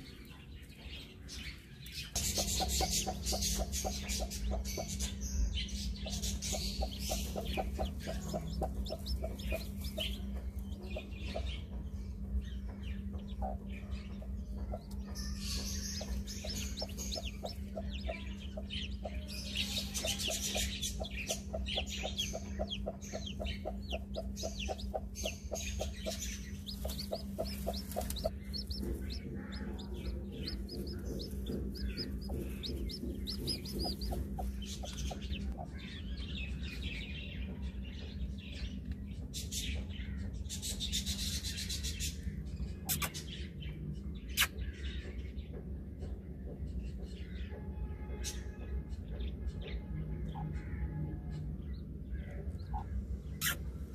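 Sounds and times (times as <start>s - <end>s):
chicks peeping: 0.0s - 53.9s
steady low hum: 0.0s - 53.9s
hen clucking: 2.1s - 5.0s, 6.0s - 11.8s, 16.0s - 35.8s.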